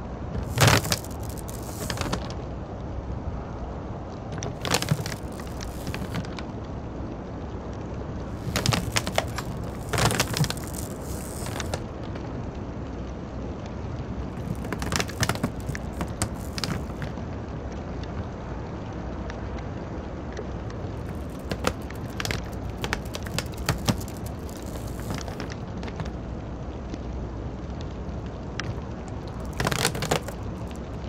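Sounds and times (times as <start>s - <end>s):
crackling clicks and snaps: 0.3s - 2.4s, 4.3s - 6.6s, 8.2s - 12.3s, 14.2s - 17.2s, 20.3s - 26.3s, 27.8s - 31.0s.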